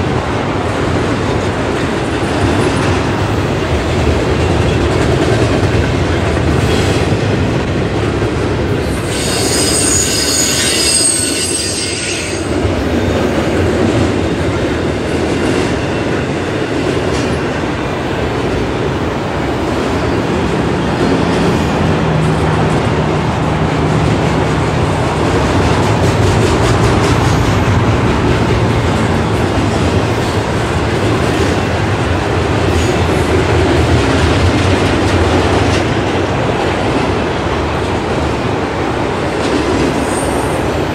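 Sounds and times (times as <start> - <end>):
steel wheels rumbling on rail: 0.0 - 40.9
high-pitched wheel squeal: 8.9 - 12.5.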